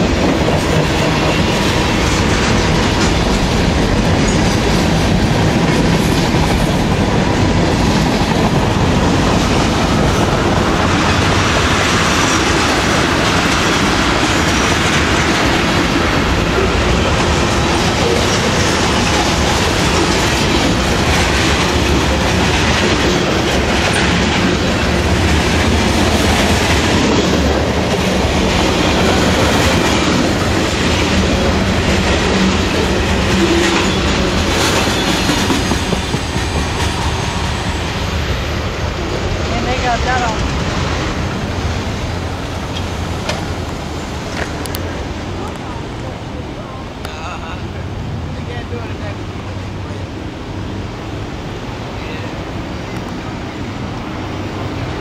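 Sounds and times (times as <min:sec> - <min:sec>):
wheels clicking over rail joints: 0:00.0 - 0:37.3, 0:40.4 - 0:46.1
freight train rolling past: 0:00.0 - 0:55.0.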